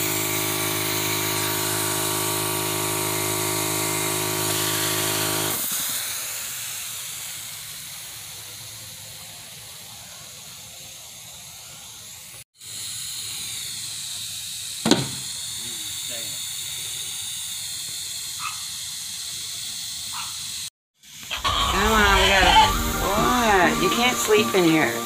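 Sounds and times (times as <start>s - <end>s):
air compressor running: 0.0s - 9.9s, 12.6s - 25.0s
soft air hiss: 13.1s - 18.3s.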